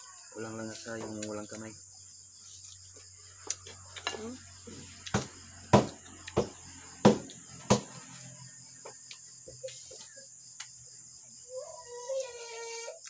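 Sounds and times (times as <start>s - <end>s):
crickets chirring: 0.0s - 13.0s
child wailing: 11.5s - 13.0s.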